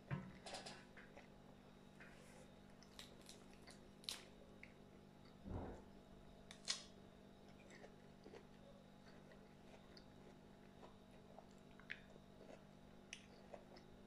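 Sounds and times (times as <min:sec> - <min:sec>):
close-up chewing: 0:02.7 - 0:05.4, 0:07.4 - 0:14.0.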